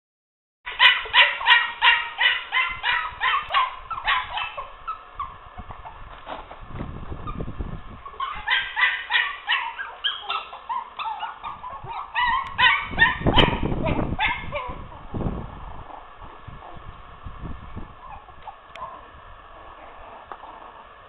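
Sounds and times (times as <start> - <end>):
puppies yapping: 0.7 - 6.0, 8.0 - 15.0, 18.0 - 19.0.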